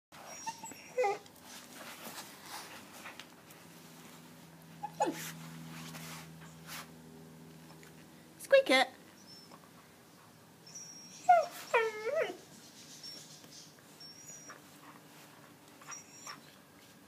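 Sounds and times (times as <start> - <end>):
soft rustling: 1.1 - 7.0.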